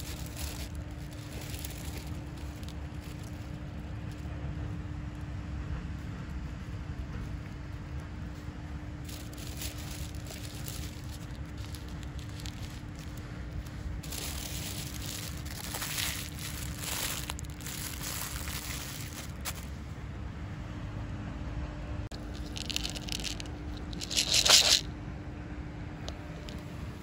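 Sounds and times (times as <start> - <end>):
plastic bags crinkling: 0.0 - 3.8, 9.0 - 19.7, 22.1 - 24.9
steady low rumble: 0.0 - 27.0.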